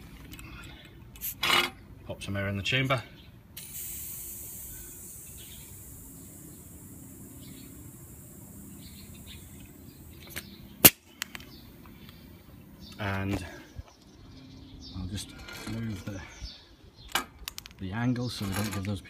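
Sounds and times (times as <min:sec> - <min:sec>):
compressed air hissing: 0:03.6 - 0:11.3.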